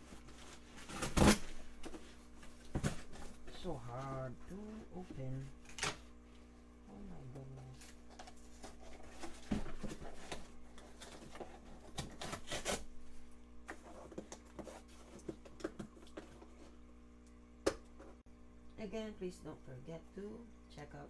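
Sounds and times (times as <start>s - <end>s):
cardboard ripping and rustling: 0.2s - 1.7s, 8.5s - 12.9s.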